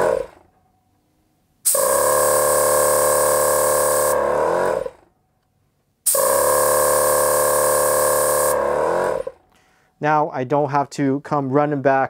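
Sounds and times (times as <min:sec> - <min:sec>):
air compressor running: 0:00.0 - 0:00.5, 0:01.6 - 0:05.1, 0:06.0 - 0:09.5
air gun hissing: 0:01.6 - 0:05.0, 0:06.0 - 0:09.3
pressure switch cutting off: 0:01.7 - 0:04.9, 0:06.1 - 0:09.3.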